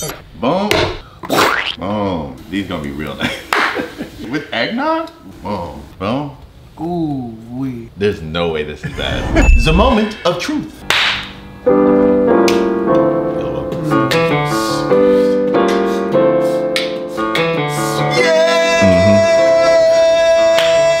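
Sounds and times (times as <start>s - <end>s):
electric piano chords: 11.4s - 19.2s.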